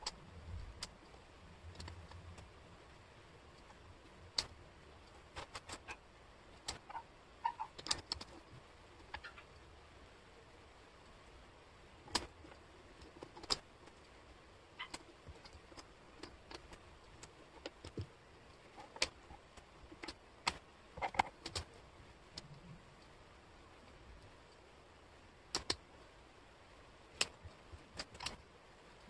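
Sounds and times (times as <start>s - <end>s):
wooden puzzle pieces clicking: 4.4s - 9.6s, 12.0s - 14.2s, 14.8s - 21.7s, 25.5s - 25.8s, 27.1s - 28.4s.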